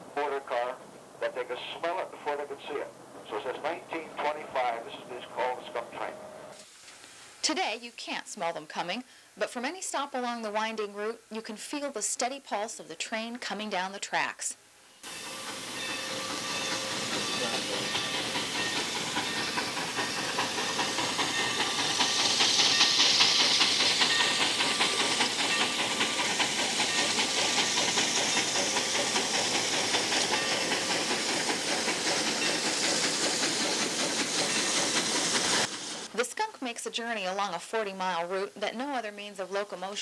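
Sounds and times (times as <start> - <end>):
steam locomotive chugging: 0.0 - 6.6, 15.0 - 36.5.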